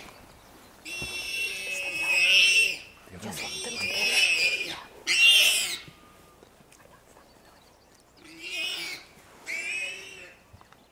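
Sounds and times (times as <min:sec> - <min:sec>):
warthog squealing: 0:00.9 - 0:05.9, 0:08.3 - 0:10.4.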